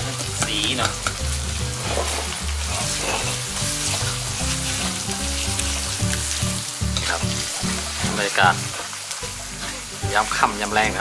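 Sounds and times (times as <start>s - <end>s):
paste sizzling in hot oil: 0.0s - 11.0s.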